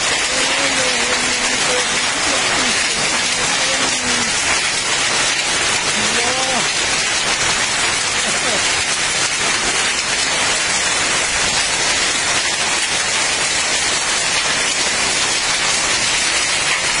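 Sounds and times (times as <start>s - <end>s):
heavy rain and hail pouring: 0.0s - 17.0s.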